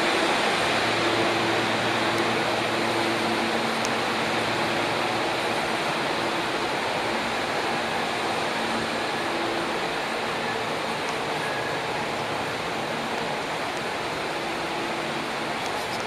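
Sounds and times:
electric train wheels rumbling: 0.0s - 16.0s.

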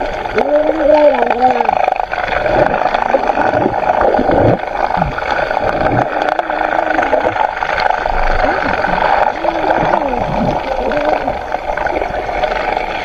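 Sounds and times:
underwater rush of water: 0.0s - 13.0s.

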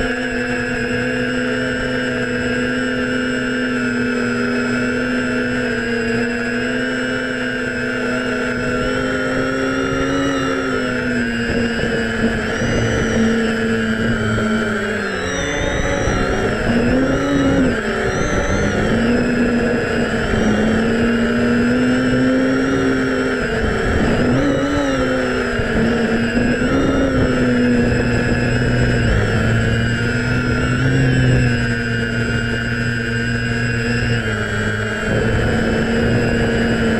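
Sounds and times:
drone motors whining: 0.0s - 36.9s
low wind rumble: 7.6s - 36.9s.

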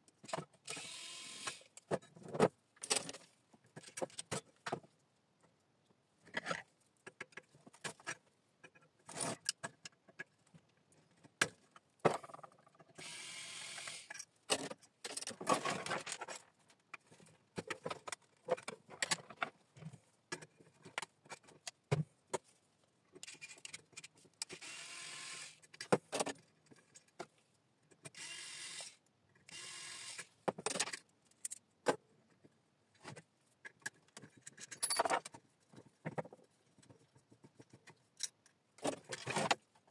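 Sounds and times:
metal parts clicking and knocking: 1.8s - 4.8s, 13.8s - 19.5s, 23.2s - 24.6s, 30.4s - 32.4s, 33.0s - 39.6s.

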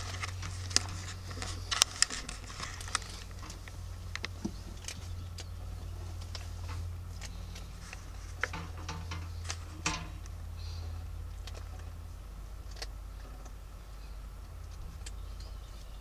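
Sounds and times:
claws scratching on plastic: 0.0s - 9.9s
low hum: 0.0s - 16.0s.

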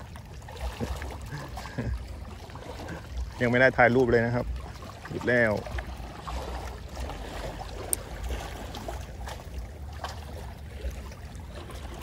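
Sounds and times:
water lapping at shore: 0.0s - 12.0s.

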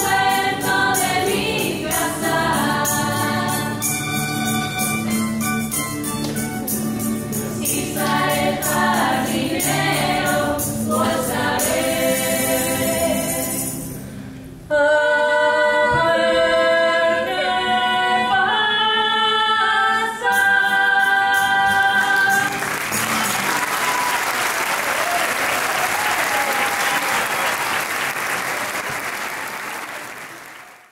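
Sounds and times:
women's choir singing: 0.0s - 4.1s, 7.4s - 13.8s, 14.7s - 22.6s
strummed guitars and bandurrias: 0.0s - 11.8s
applause: 22.2s - 30.9s.

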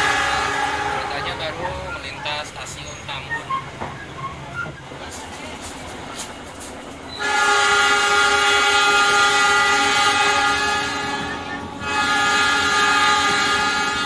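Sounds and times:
train horn blast: 0.0s - 2.1s, 7.1s - 14.0s.

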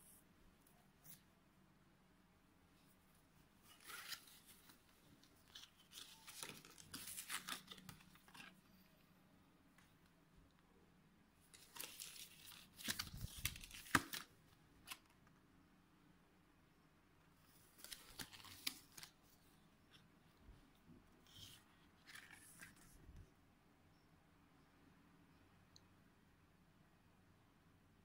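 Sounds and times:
paper and fabric rustling: 3.6s - 8.8s, 11.6s - 14.3s.

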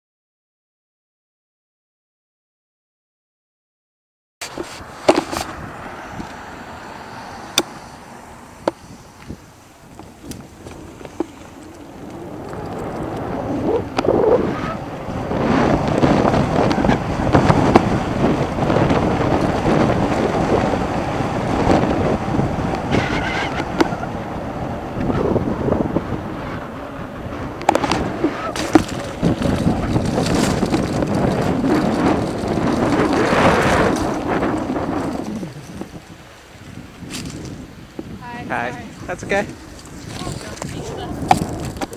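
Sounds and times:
bike knocks and rattles: 4.4s - 5.5s, 27.6s - 35.9s
bike tyres rolling on pavement: 4.4s - 41.9s
wind noise on microphone: 4.4s - 41.9s.

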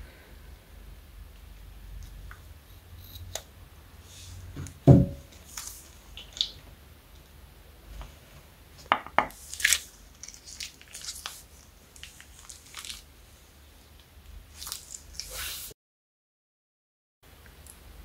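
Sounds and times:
loud thump: 4.6s - 5.3s
piping bag crinkling and squelching: 9.4s - 13.2s, 14.0s - 15.6s.

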